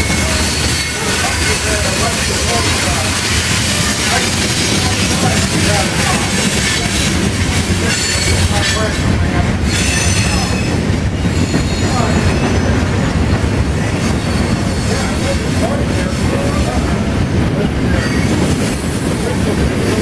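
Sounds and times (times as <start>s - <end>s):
train wheels rumbling on rail: 0.0s - 20.0s
high-pitched wheel squeal: 9.7s - 12.7s.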